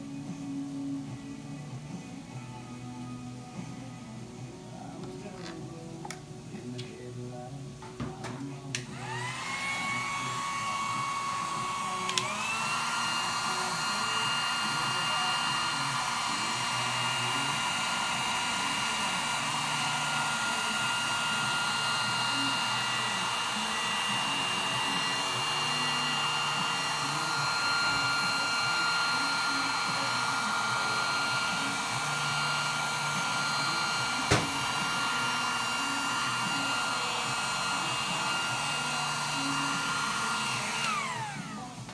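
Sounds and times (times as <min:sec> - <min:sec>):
heat gun blowing air: 0:08.8 - 0:41.9.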